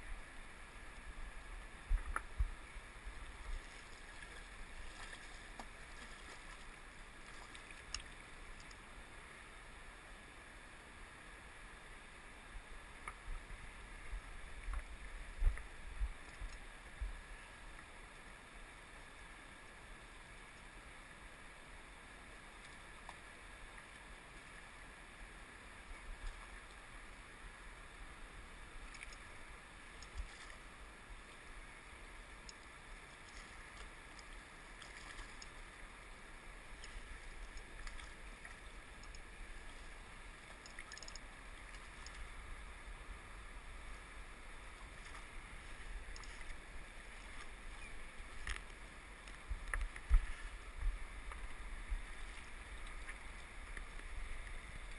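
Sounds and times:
faint ticks: 3.5 - 8.9, 13.0 - 13.4, 14.1 - 18.3, 20.5 - 20.8, 22.6 - 24.5, 28.8 - 30.7, 32.3 - 42.4, 44.7 - 54.9.

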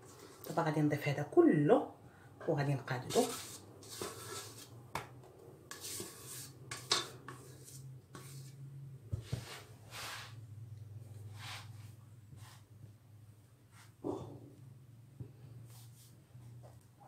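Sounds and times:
spatula spreading cream: 3.0 - 4.8, 5.7 - 8.6.

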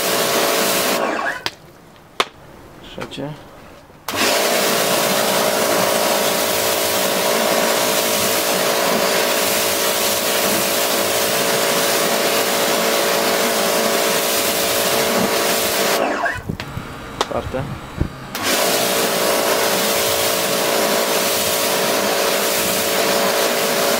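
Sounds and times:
pressure washer motor: 0.0 - 1.5, 4.1 - 23.9
water spray hissing: 4.1 - 16.0, 18.0 - 23.9.

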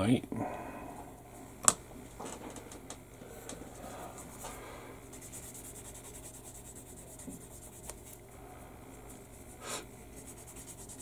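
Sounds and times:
sanding stick scratching plastic: 5.2 - 8.2, 9.3 - 11.0.

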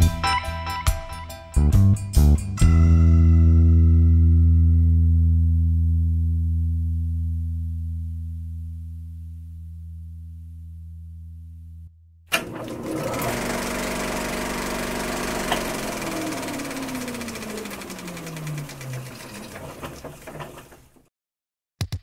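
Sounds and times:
projector starting click: 12.3 - 13.6, 15.0 - 20.7
film projector clatter: 12.3 - 21.0.

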